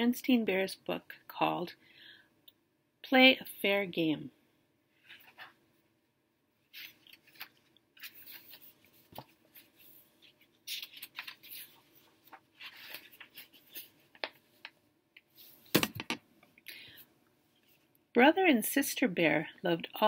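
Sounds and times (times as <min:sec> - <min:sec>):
book pages rustling: 0:05.0 - 0:05.6, 0:06.7 - 0:16.1.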